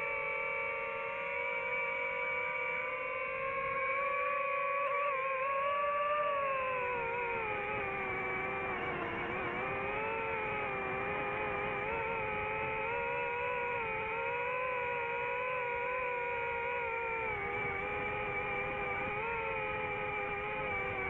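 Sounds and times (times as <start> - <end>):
drone propellers whining: 3.8 - 21.0.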